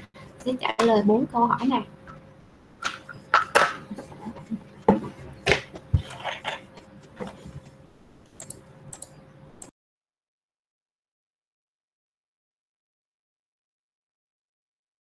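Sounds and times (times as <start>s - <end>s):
faint electrical hum: 0.0s - 9.7s.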